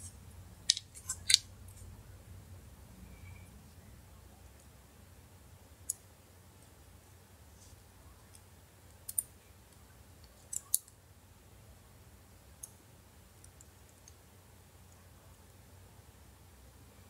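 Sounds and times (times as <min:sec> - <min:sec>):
small parts clicking into place: 0:00.7 - 0:01.8, 0:09.0 - 0:09.3, 0:10.2 - 0:11.0.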